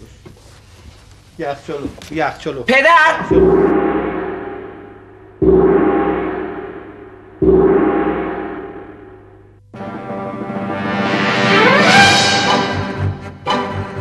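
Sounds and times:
gong ringing: 3.3 - 9.4.

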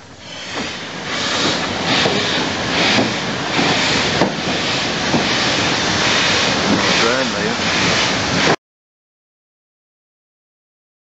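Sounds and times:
steam train chuffing: 0.0 - 8.6
wheels rumbling on rail: 0.0 - 8.6.

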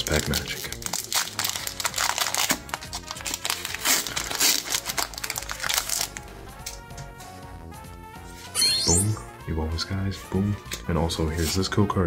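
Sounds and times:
foil pack crinkling: 0.0 - 6.8
background music: 0.0 - 12.0.

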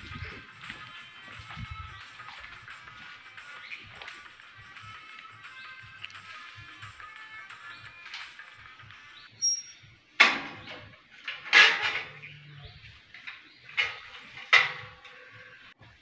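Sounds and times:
metal gate clanking and rattling: 9.4 - 12.5, 13.1 - 15.6.

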